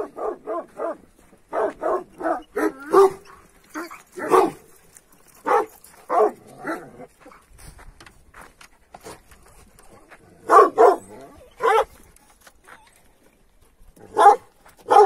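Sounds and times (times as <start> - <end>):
dogs barking deeply: 0.0 - 3.5, 4.2 - 4.6, 10.4 - 11.9, 14.0 - 15.0.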